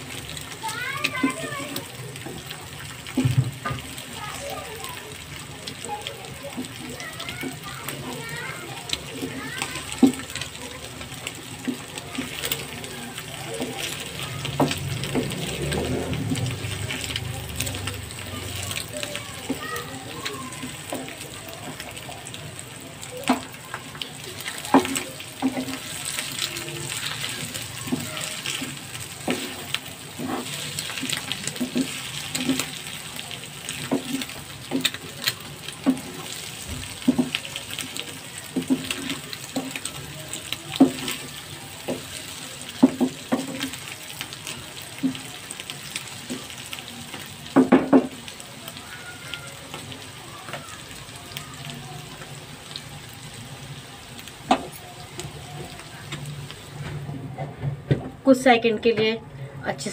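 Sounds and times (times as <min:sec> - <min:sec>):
food sizzling in a pan: 0:00.0 - 0:59.9
wooden spatula knocking and scraping: 0:24.5 - 0:32.8.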